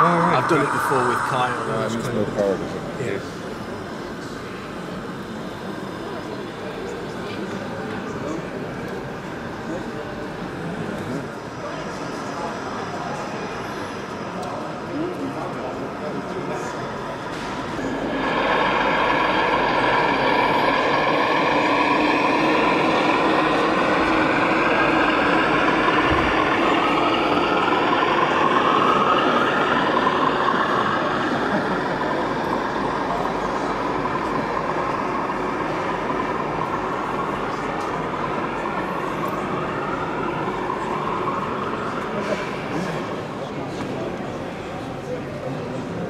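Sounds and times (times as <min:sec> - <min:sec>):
model train motor drone: 0:14.0 - 0:44.1.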